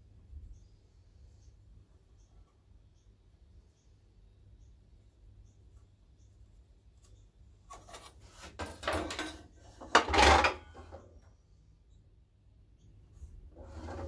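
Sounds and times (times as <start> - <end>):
wood scraping on metal table: 7.7 - 11.2, 13.5 - 14.0.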